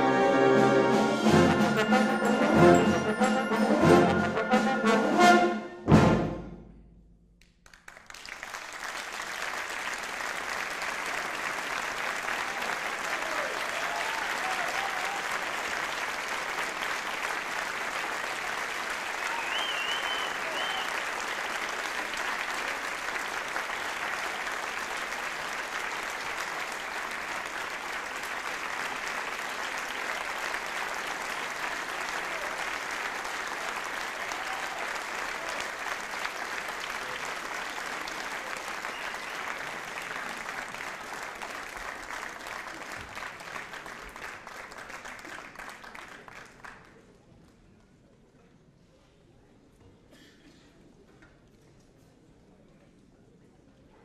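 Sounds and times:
audience applauding: 0:07.4 - 0:47.2.

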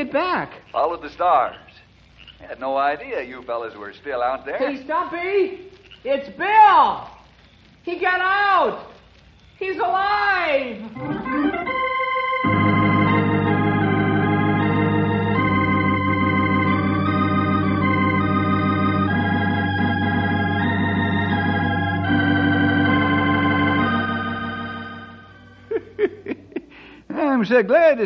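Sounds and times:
organ chords: 0:10.8 - 0:26.9.

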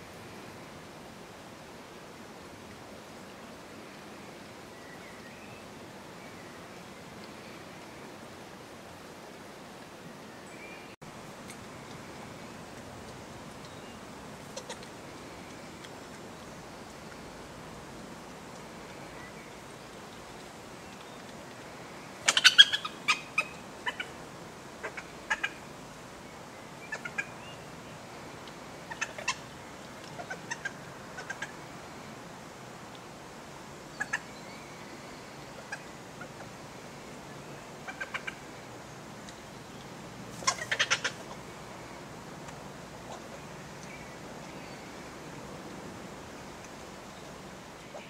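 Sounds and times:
badger cubs chittering: 0:22.2 - 0:24.1, 0:40.4 - 0:41.4.

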